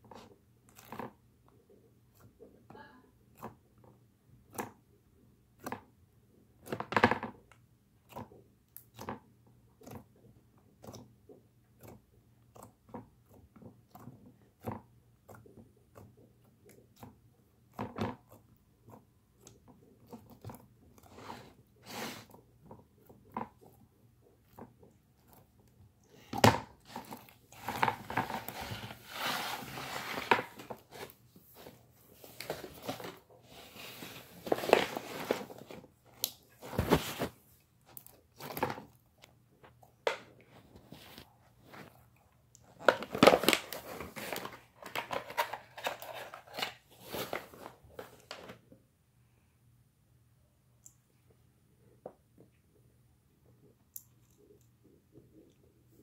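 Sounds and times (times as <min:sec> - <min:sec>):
slime squelching and popping: 0:03.2 - 0:21.1.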